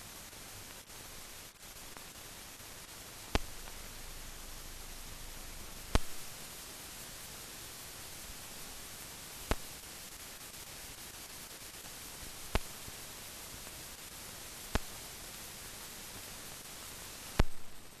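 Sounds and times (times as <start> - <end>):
steady film hiss: 0.0 - 18.0
sharp clicks: 3.3 - 3.8, 5.9 - 6.2, 17.4 - 17.7.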